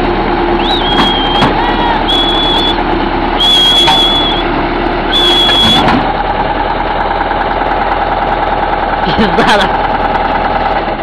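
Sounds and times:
diesel engine running: 0.0s - 11.0s
shrill whistle blasts: 0.6s - 2.8s, 3.4s - 4.5s, 5.1s - 5.9s.

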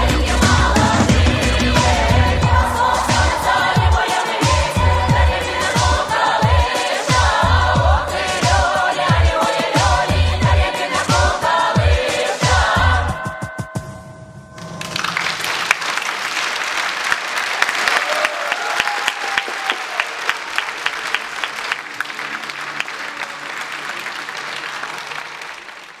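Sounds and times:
rhythmic clapping: 14.6s - 26.0s
audience applause: 14.8s - 26.0s.

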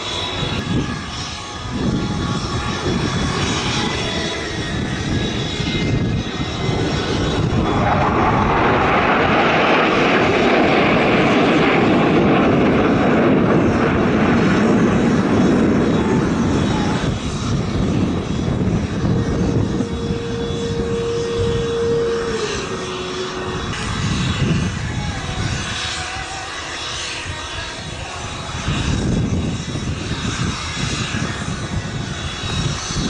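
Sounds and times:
jet engines flying past: 0.0s - 33.0s.

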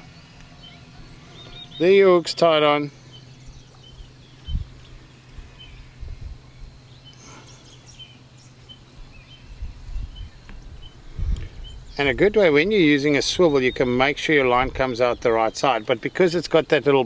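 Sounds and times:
steady low hum: 0.0s - 17.0s
low rumbles and thumps: 3.5s - 6.8s.

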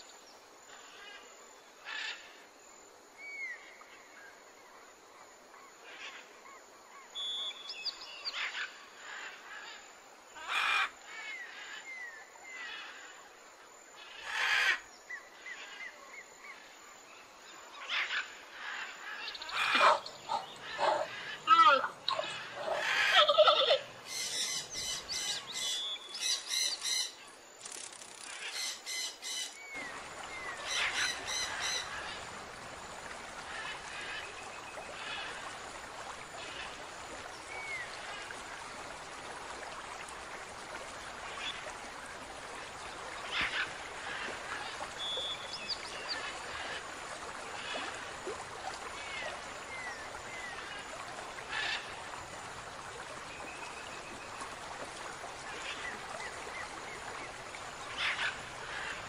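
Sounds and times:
outdoor background hiss: 0.0s - 59.0s
bird calls: 19.2s - 32.2s.

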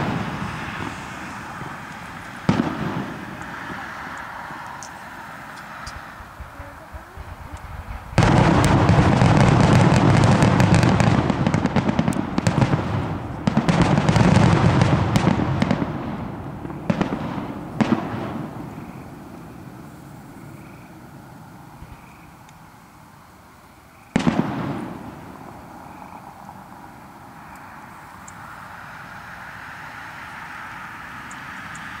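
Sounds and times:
sharp firework bangs: 0.0s - 5.0s, 5.6s - 19.9s, 24.1s - 26.2s
fireworks crackling: 0.0s - 22.7s, 24.1s - 29.1s.

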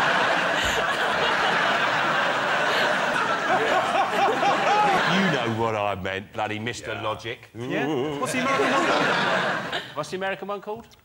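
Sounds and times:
audience laughing: 0.0s - 5.7s, 8.0s - 10.1s
man laughing: 3.5s - 5.3s.

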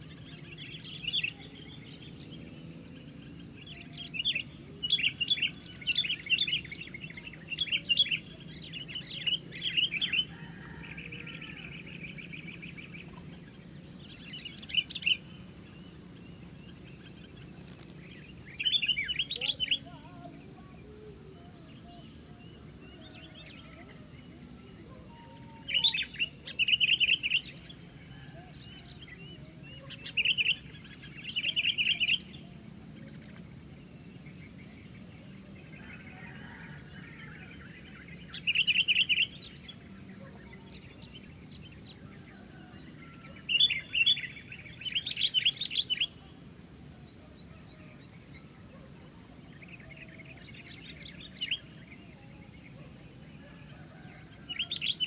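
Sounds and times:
bird singing: 0.0s - 55.0s.

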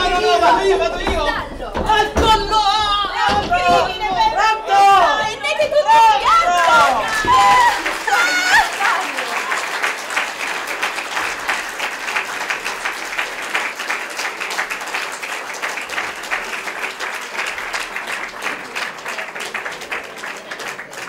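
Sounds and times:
audience applauding: 2.2s - 21.0s.

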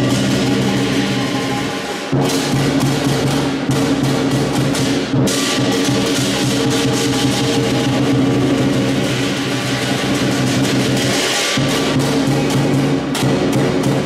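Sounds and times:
ringing gong: 0.0s - 2.8s
big drum beaten rapidly: 0.0s - 14.0s
clashing cymbals: 0.0s - 14.0s.

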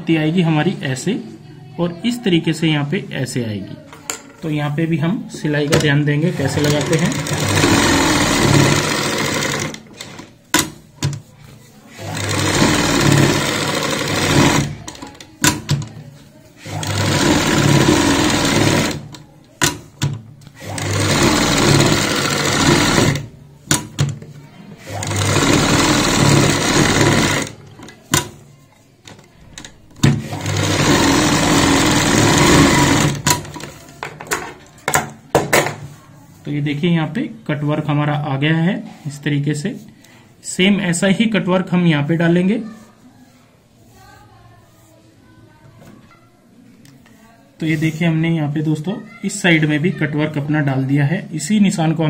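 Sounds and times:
sewing machine stitching: 5.7s - 11.3s, 11.9s - 16.0s, 16.6s - 24.2s, 24.8s - 28.4s, 29.6s - 33.8s
sewing machine clicks: 16.6s - 24.1s, 24.8s - 28.3s.

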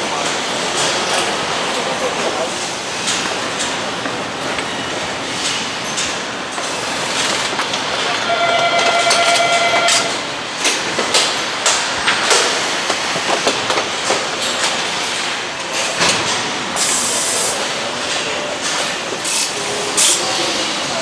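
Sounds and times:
steady high tone: 8.1s - 10.4s.

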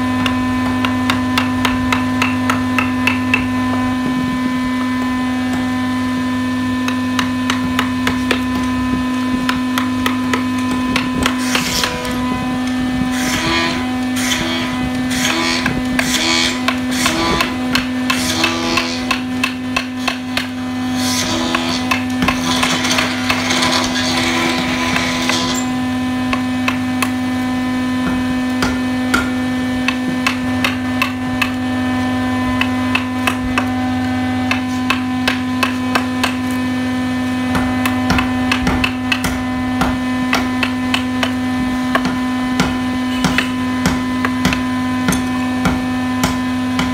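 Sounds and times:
steady electrical hum: 0.0s - 46.9s.

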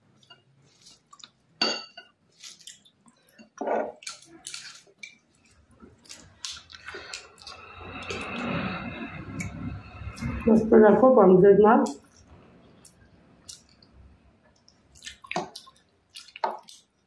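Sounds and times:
clinks and wet squelches: 0.0s - 8.7s, 11.8s - 17.0s
chewing: 0.2s - 1.4s, 2.3s - 8.4s, 11.9s - 17.0s.

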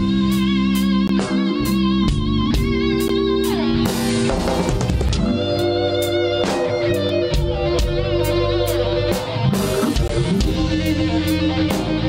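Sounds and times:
bass guitar: 0.0s - 12.0s
electric guitar: 0.0s - 12.0s.

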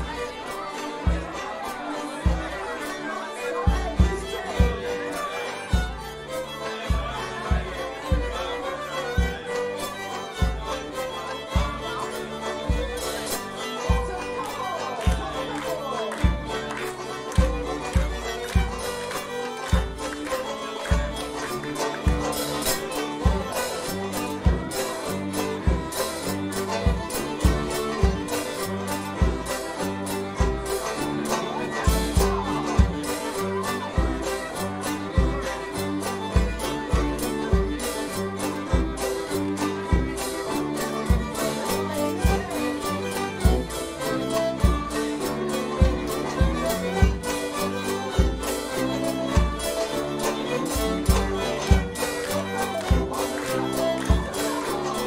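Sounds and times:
banjo: 0.0s - 55.0s
country dance band playing: 0.0s - 55.0s
fiddle: 0.0s - 55.0s.

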